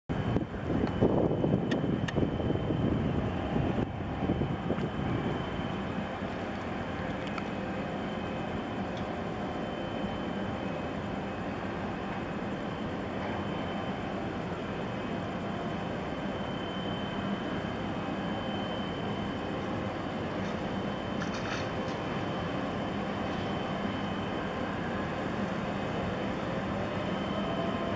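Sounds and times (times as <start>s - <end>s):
wind buffeting microphone: 0.1s - 6.2s
ship machinery drone: 0.1s - 27.9s.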